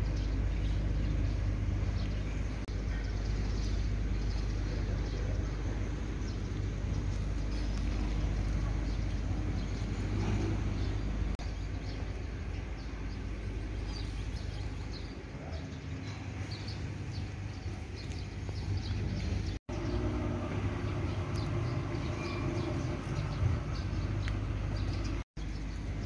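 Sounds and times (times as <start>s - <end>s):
high bird chirps: 21.0s - 25.8s.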